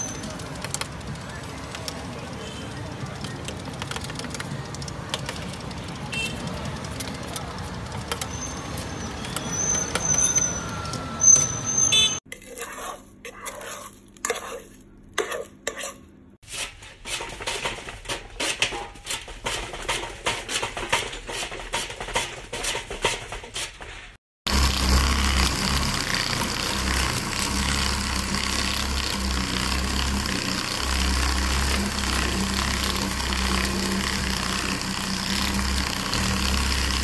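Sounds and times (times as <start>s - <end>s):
sharp clicks and crackles: 0.0s - 10.1s, 24.5s - 37.0s
street stall ambience: 0.0s - 37.0s
metal scraper on metal board: 12.3s - 24.2s.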